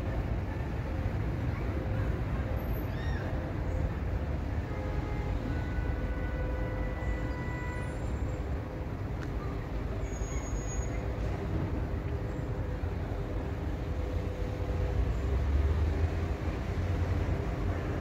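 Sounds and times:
electric train rumble: 0:10.6 - 0:18.0.

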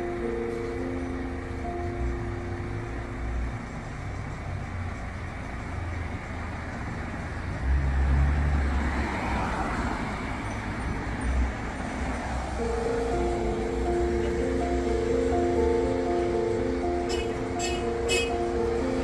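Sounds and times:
traffic rumble: 0:00.0 - 0:19.0
vehicle passing close with tyre hiss: 0:03.8 - 0:15.3.

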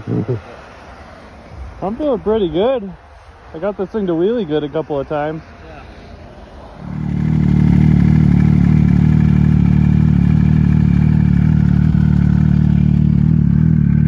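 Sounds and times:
snowmobile engine running: 0:06.4 - 0:14.0.

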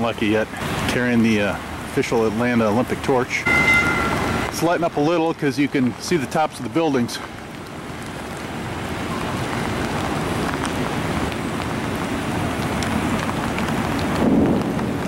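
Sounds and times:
heavy rain on pavement: 0:00.0 - 0:15.0.

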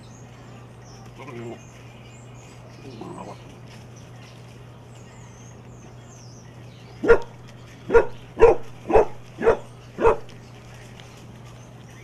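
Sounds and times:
puppy barking: 0:07.0 - 0:10.4.

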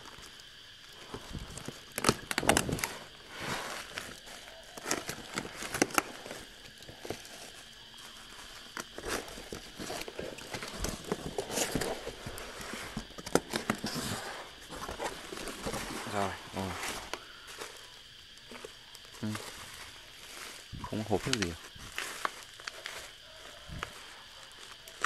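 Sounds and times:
plastic wrap crinkling: 0:01.0 - 0:25.0
cardboard rustling and scraping: 0:01.1 - 0:17.8.

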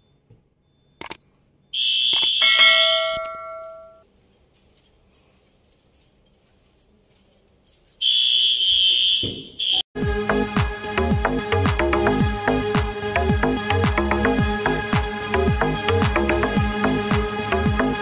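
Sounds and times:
sharp click: 0:01.0 - 0:01.2
high-pitched fire alarm bursts: 0:01.7 - 0:04.0, 0:08.0 - 0:09.8
lower ringing tones: 0:02.4 - 0:04.1.

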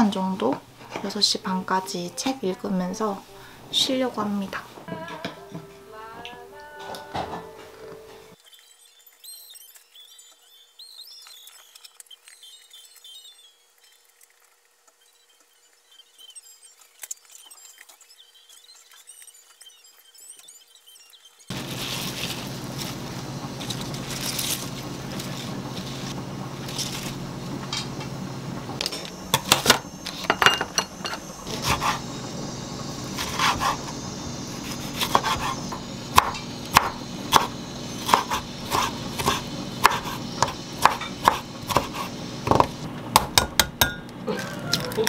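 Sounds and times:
rustling of spinach leaves: 0:21.5 - 0:27.2
knife cutting on wooden board: 0:34.6 - 0:42.7.

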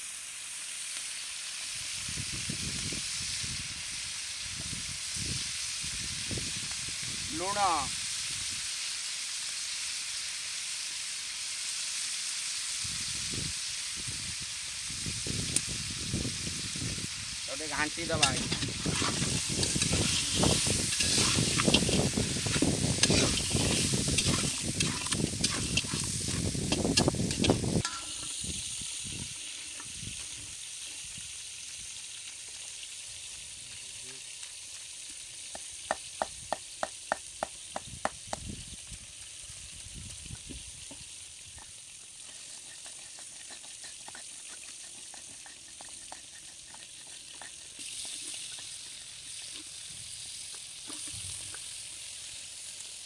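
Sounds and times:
crabs frying in hot oil: 0:00.0 - 0:53.0
spatula stirring and scraping: 0:17.8 - 0:28.2, 0:41.6 - 0:49.8
stone pestle pounding spices: 0:18.0 - 0:28.0, 0:42.3 - 0:49.0.

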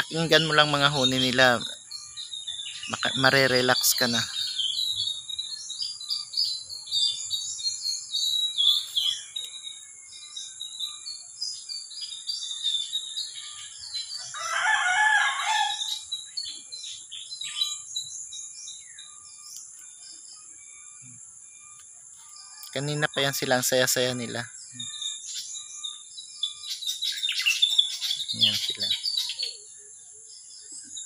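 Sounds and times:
songbirds chirping: 0:00.0 - 0:31.0
rooster crowing: 0:14.0 - 0:16.0.

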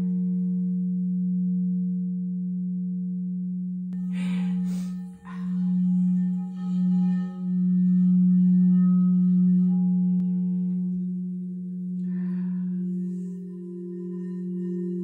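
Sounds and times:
low singing bowl tone: 0:00.0 - 0:15.0
higher singing bowl tones: 0:04.0 - 0:15.0.

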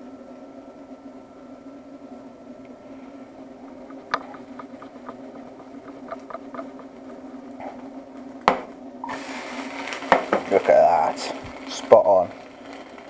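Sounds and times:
steady hum: 0:00.0 - 0:13.0
pan knocking: 0:03.8 - 0:07.3
spatula tapping pan: 0:03.8 - 0:07.3
omelette crackling in frying pan: 0:03.8 - 0:07.9, 0:09.1 - 0:13.0.

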